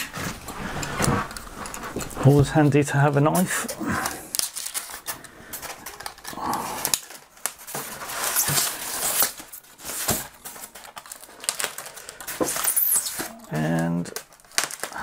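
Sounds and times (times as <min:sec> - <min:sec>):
polystyrene foam rustling and scraping: 0:00.0 - 0:03.6, 0:04.2 - 0:15.0
knife cutting packing tape: 0:05.8 - 0:13.6.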